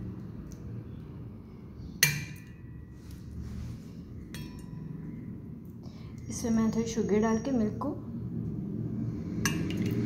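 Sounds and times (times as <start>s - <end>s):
metal spoon clinking against bowl: 4.3s - 5.1s.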